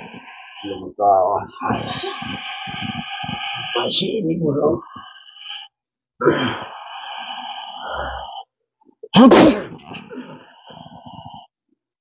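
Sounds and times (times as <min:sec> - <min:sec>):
high eerie tones: 0:00.0 - 0:08.4
loud burst of breath and voice: 0:00.0 - 0:08.5.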